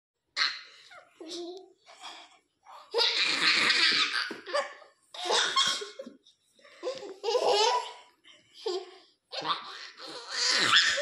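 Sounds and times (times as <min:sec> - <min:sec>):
baby laughing: 0:06.9 - 0:08.0.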